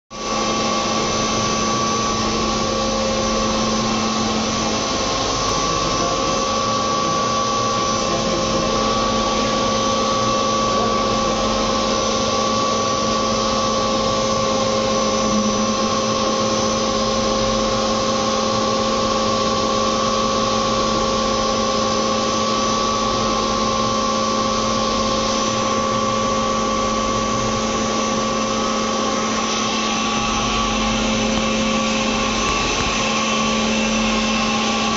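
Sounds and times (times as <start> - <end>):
machine hum and whine: 0.1 - 34.9
noisy rush: 24.8 - 34.9.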